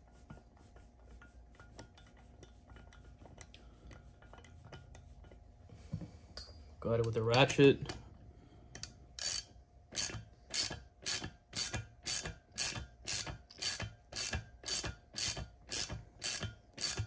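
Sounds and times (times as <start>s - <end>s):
ratchet pawl clicking: 8.8s - 17.0s.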